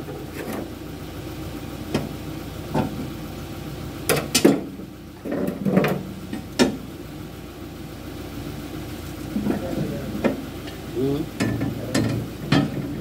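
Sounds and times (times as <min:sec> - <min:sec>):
low engine hum: 0:00.0 - 0:13.0
metal knocks and clanks: 0:04.1 - 0:06.8, 0:11.4 - 0:13.0.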